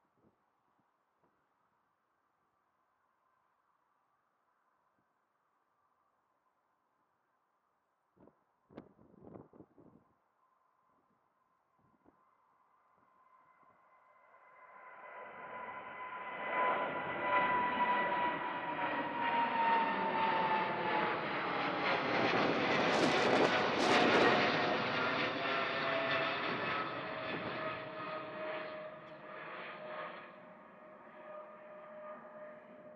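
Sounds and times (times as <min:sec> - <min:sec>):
jet airliner passing overhead: 0:13.2 - 0:32.9
high jet engine whine: 0:14.2 - 0:32.9.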